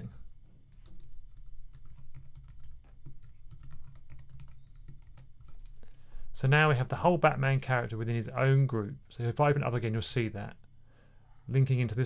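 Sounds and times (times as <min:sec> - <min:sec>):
typing on computer keyboard: 0:00.0 - 0:05.8.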